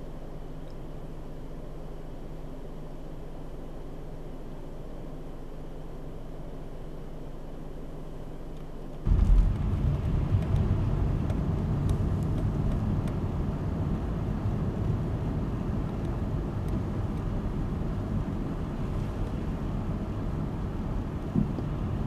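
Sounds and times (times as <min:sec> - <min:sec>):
car interior road rumble: 0:09.0 - 0:22.0.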